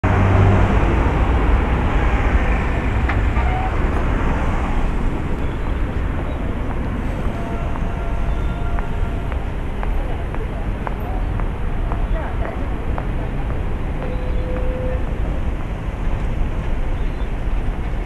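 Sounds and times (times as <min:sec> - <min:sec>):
traffic rumble: 0:00.0 - 0:18.0.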